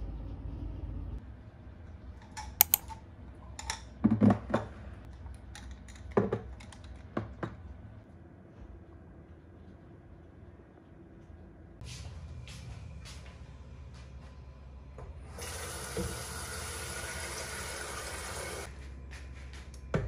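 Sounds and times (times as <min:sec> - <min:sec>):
clicks and taps on hard surface: 0:02.6 - 0:02.8.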